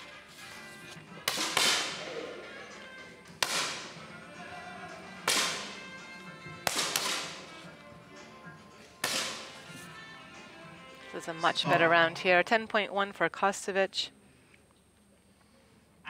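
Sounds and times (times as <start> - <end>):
air pistol shots echoing: 1.2 - 2.3, 3.4 - 4.0, 5.2 - 5.8, 6.6 - 7.5, 9.0 - 9.6.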